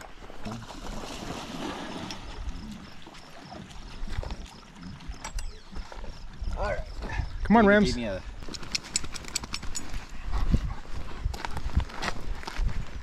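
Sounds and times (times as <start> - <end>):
wind buffeting microphone: 5.5 - 13.0
footsteps and gear clicks: 8.4 - 13.0.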